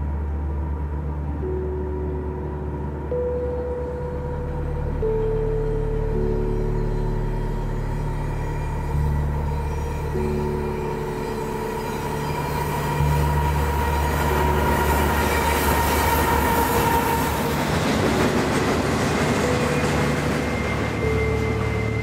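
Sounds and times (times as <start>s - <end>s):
freight train low rumble: 0.0s - 22.0s
train wheels squealing: 7.6s - 22.0s.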